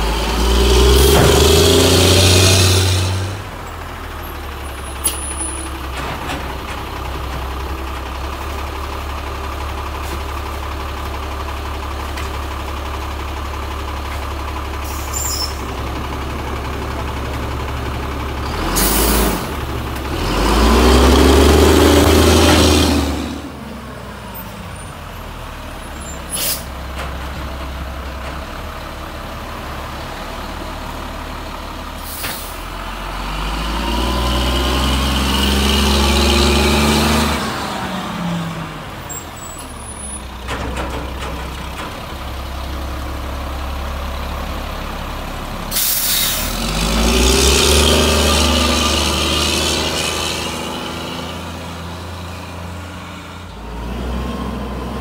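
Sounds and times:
truck diesel engine revving: 0.0s - 5.2s, 12.6s - 24.3s, 28.7s - 39.7s, 41.1s - 55.0s
air brake hiss: 14.8s - 15.6s, 26.3s - 26.7s, 32.0s - 32.6s, 45.7s - 46.5s.

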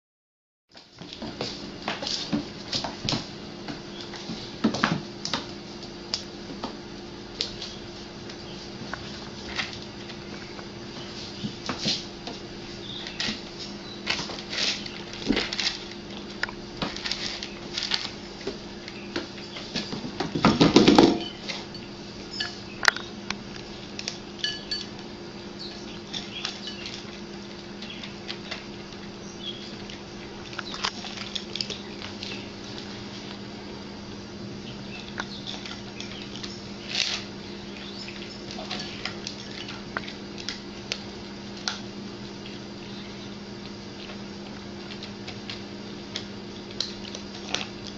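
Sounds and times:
steady low hum: 0.7s - 47.9s
cats crunching dry kibble: 7.0s - 21.7s, 22.8s - 47.9s
bowls clinking on tile floor: 20.5s - 22.6s, 24.4s - 24.9s.

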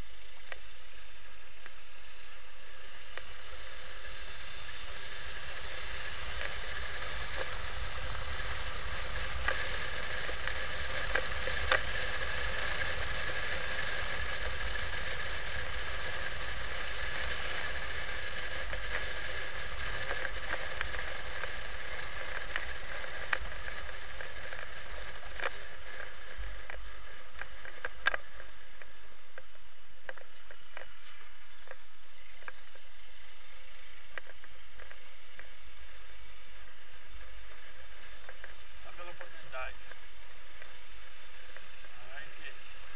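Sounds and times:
faint high whine: 0.0s - 42.9s
motorcycle road and wind noise: 0.0s - 42.9s
sharp clicks and rattles: 6.1s - 32.6s.

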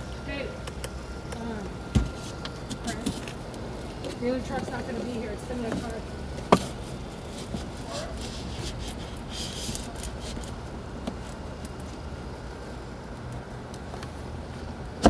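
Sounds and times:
steady low hum: 0.0s - 15.0s
light clicks and handling rustles: 2.1s - 12.0s.

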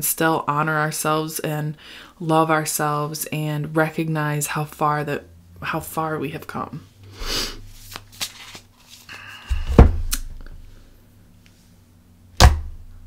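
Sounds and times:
dull thumps on a tabletop: 9.5s - 10.1s, 12.4s - 12.8s.

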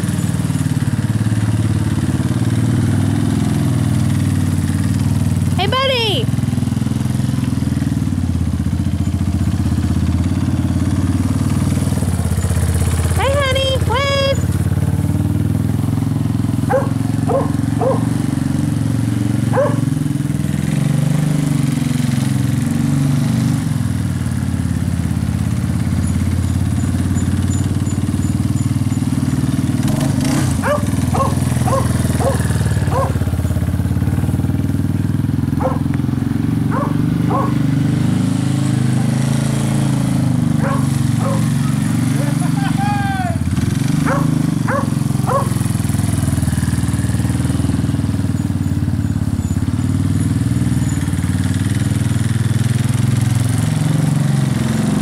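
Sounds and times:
atv engine running: 0.0s - 55.0s
dog barking: 16.7s - 18.1s, 19.5s - 20.0s, 30.6s - 33.2s, 35.6s - 35.9s, 36.7s - 37.6s, 40.6s - 41.8s, 44.0s - 45.6s.

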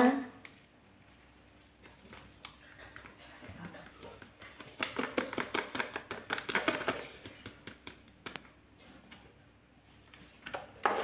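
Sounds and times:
sachet tapping: 4.2s - 8.5s.

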